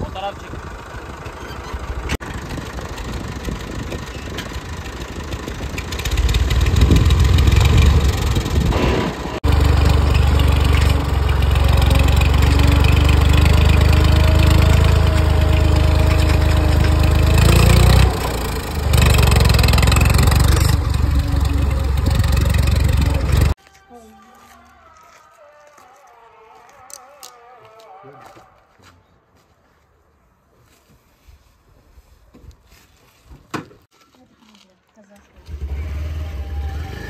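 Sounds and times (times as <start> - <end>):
vehicle engine rumbling: 0.0 - 23.6.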